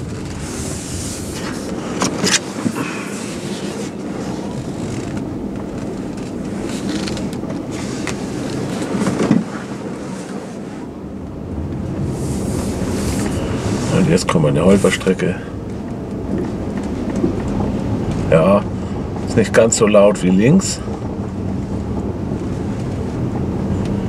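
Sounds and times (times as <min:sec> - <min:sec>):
car road rumble: 0:00.0 - 0:24.0
suspension knocks: 0:15.5 - 0:24.0.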